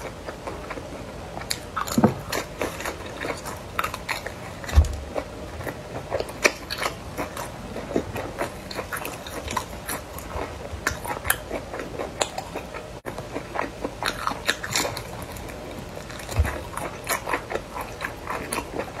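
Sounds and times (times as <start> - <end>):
crunchy chewing: 0.0 - 19.0.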